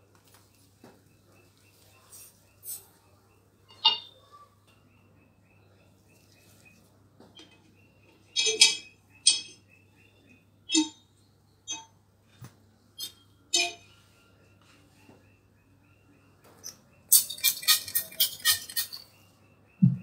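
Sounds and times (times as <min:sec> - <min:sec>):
utensils and dishes clinking: 0:08.3 - 0:09.6, 0:17.1 - 0:19.2.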